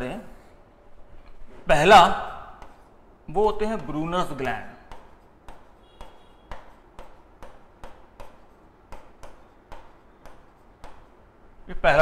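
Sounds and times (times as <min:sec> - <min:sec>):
marker pen tapping on whiteboard: 0:02.6 - 0:02.9, 0:03.5 - 0:11.2
marker pen squeak: 0:05.7 - 0:06.8.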